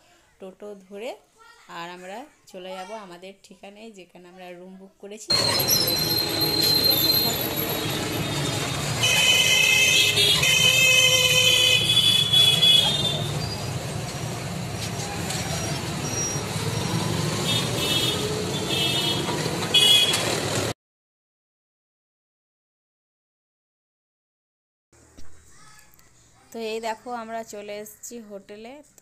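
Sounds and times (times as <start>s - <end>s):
vehicle horn: 5.3s - 13.5s, 17.4s - 20.5s
traffic engines and road noise: 5.3s - 20.8s.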